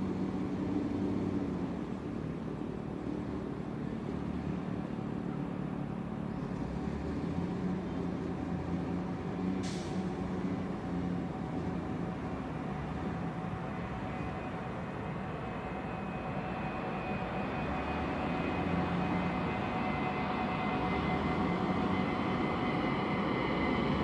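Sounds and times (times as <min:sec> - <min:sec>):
faint steady tones: 0:00.0 - 0:24.0
low engine rumble: 0:00.0 - 0:24.0
short hiss: 0:09.6 - 0:10.1.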